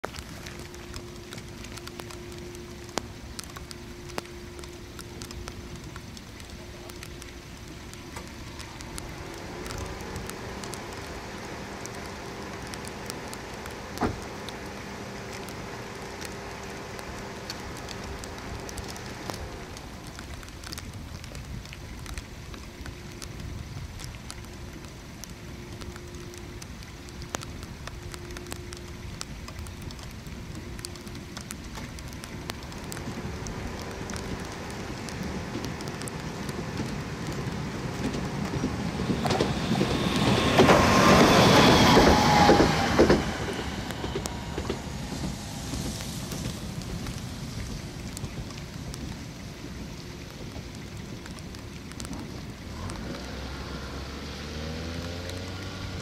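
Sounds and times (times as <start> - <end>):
rain pattering: 0.0 - 56.0.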